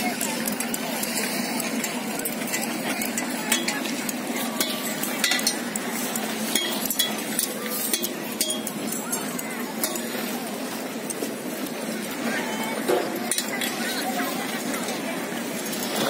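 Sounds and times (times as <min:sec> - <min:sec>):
spiked poles clicking on ice: 0:00.1 - 0:10.2
sled runners scraping on ice: 0:13.6 - 0:16.0.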